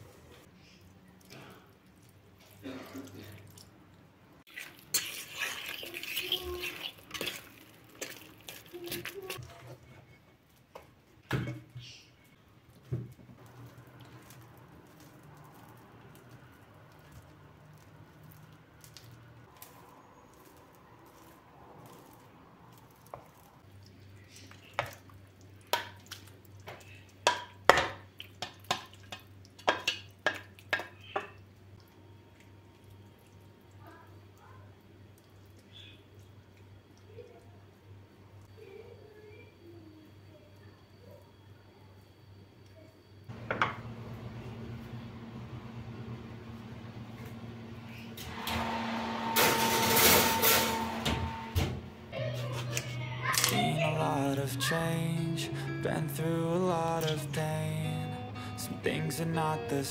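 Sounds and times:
spoon stirring in steel bowl: 4.5s - 10.3s, 13.4s - 31.4s.

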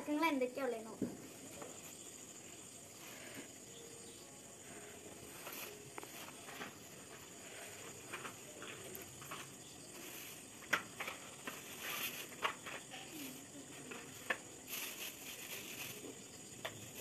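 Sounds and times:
plastic bag rustling: 9.9s - 17.0s.

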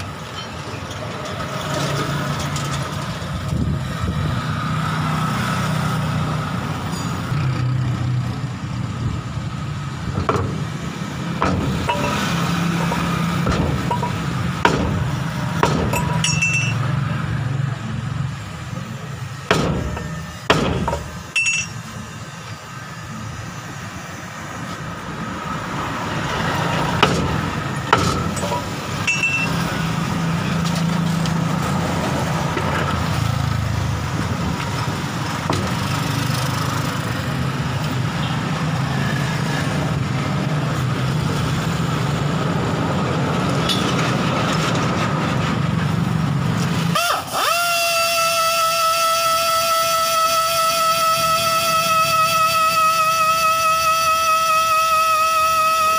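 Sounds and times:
low vehicle rumble: 0.0s - 47.0s
sharp metallic clanks: 6.9s - 7.6s, 10.2s - 17.0s, 19.5s - 21.9s, 27.0s - 29.8s.

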